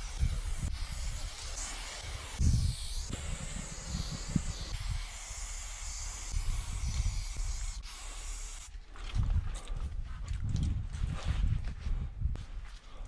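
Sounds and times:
spray can hissing: 0.0 - 8.7.

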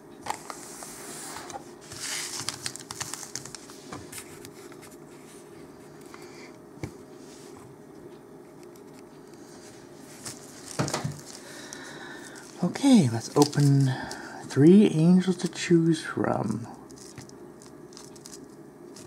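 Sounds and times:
foil wrappers crinkling: 1.9 - 4.3, 10.1 - 14.5, 16.8 - 19.0.

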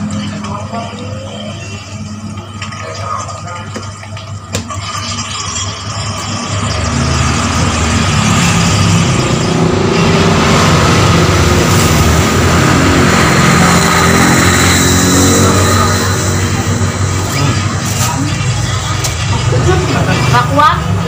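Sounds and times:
vehicle engine running: 6.2 - 21.0.

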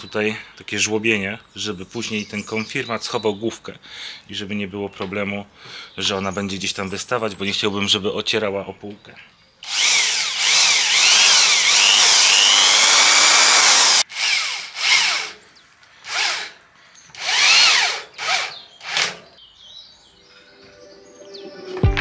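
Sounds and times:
cordless drill boring into wood: 9.6 - 15.4, 16.0 - 19.2
drill motor whining in bursts: 9.6 - 15.4, 16.1 - 16.6, 17.2 - 19.2.

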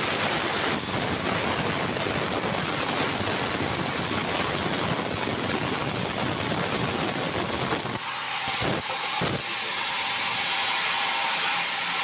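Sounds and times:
band saw cutting timber: 8.0 - 12.0.

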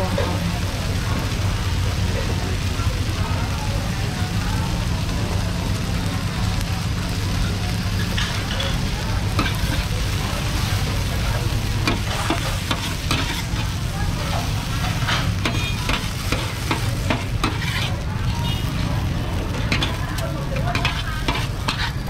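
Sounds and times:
noodles sizzling in wok: 0.0 - 22.0
metal spatula scraping wok: 8.0 - 22.0.

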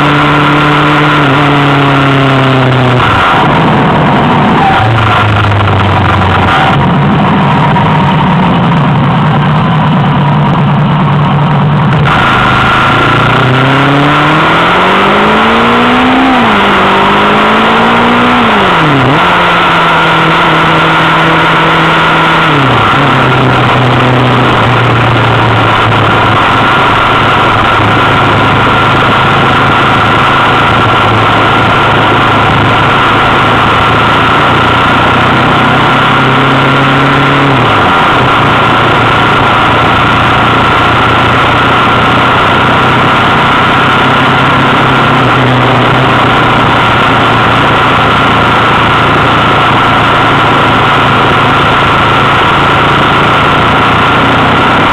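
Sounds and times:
wind rush on microphone: 0.0 - 17.3
motorcycle engine running: 0.0 - 54.9.

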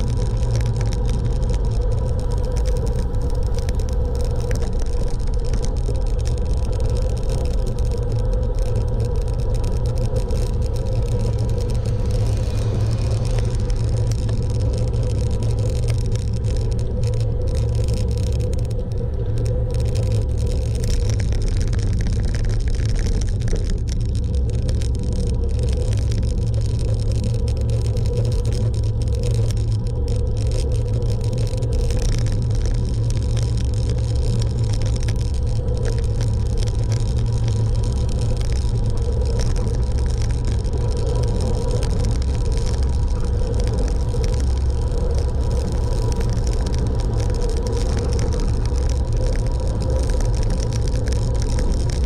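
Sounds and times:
vehicle road rumble: 0.0 - 52.0
wind noise: 0.0 - 52.0.

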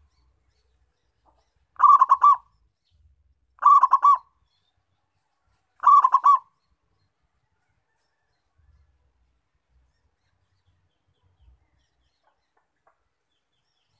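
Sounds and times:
dove cooing: 1.8 - 2.5, 3.6 - 4.3, 5.8 - 6.5.

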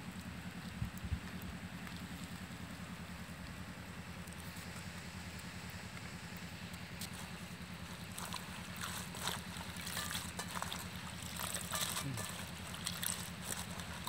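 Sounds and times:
banana flower florets rustling in bowl: 7.1 - 14.0.

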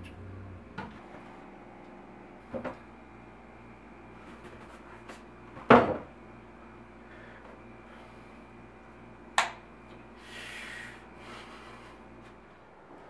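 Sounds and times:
knock on cabinet: 5.7 - 6.1.

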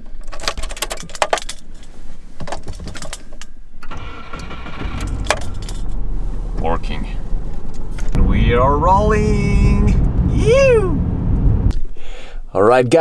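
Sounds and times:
starter cranking: 3.8 - 6.7
car engine running: 4.5 - 11.7.

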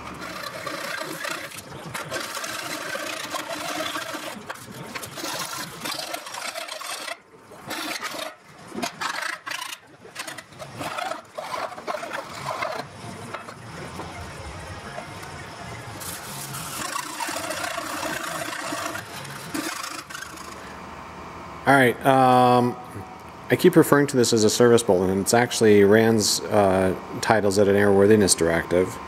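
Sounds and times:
hand file rasping on sheet metal: 0.0 - 12.9, 16.0 - 20.6.

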